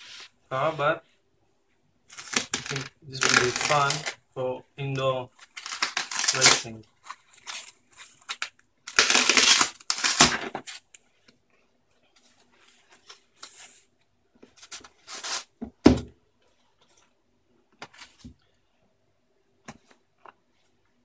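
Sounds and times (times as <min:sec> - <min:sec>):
packing wrap tearing: 0:02.1 - 0:04.2, 0:05.4 - 0:06.7, 0:07.3 - 0:10.4, 0:14.7 - 0:15.5
wrap crinkling: 0:02.1 - 0:04.2, 0:05.3 - 0:10.9.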